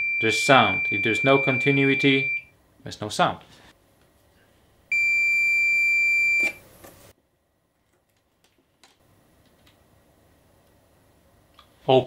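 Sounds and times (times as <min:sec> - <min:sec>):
high-pitched multimeter beep: 0:00.0 - 0:02.5, 0:04.9 - 0:06.6.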